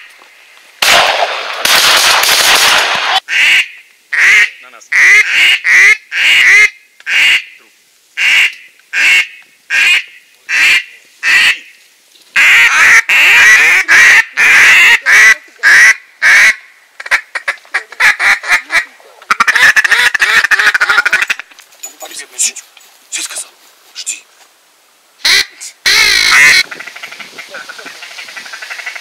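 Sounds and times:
duck call quacking: 3.1s - 7.6s, 8.2s - 11.7s, 12.4s - 21.4s, 25.2s - 29.0s.

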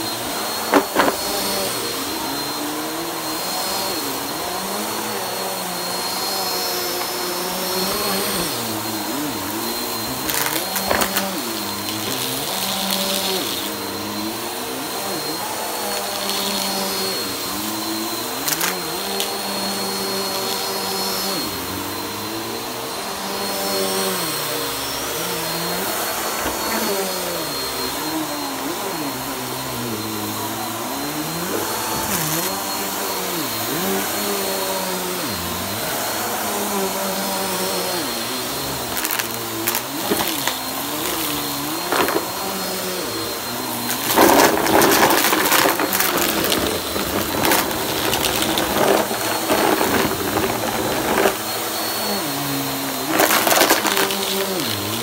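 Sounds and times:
vacuum cleaner running: 0.0s - 55.0s
paper crackling and rattling: 10.3s - 13.4s, 38.9s - 42.4s, 43.9s - 51.5s, 53.1s - 55.0s.

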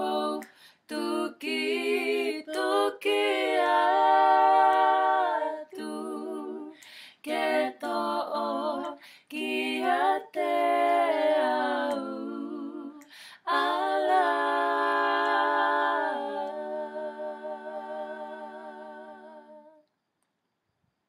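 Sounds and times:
women singing a cappella hymn: 0.0s - 19.8s
breath: 0.5s - 0.9s, 6.8s - 7.2s, 9.0s - 9.3s, 13.0s - 13.4s.

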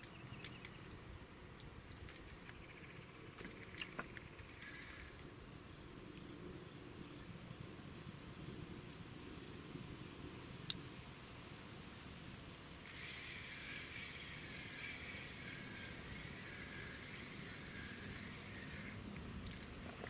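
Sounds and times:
fishing reel whirring: 2.0s - 5.2s, 12.8s - 20.0s.

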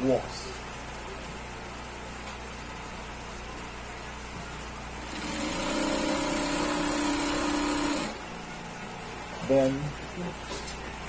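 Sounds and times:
sewing machine motor hum: 4.6s - 8.6s.

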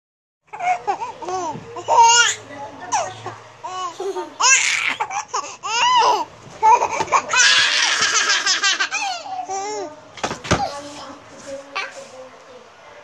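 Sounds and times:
baby laughing: 0.5s - 9.9s.

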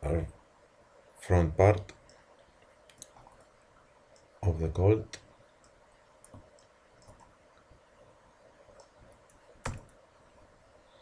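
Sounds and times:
keyboard and mouse clicks: 2.8s - 3.5s, 5.6s - 7.4s, 8.7s - 10.0s.

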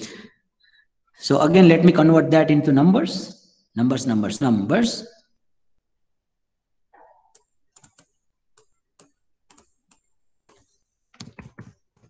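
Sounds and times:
mouse and keyboard clicking: 7.3s - 11.8s.

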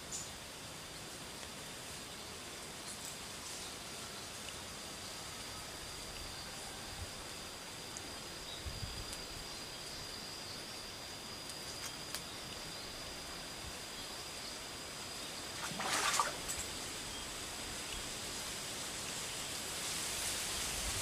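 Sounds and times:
stream trickling: 7.2s - 18.7s.

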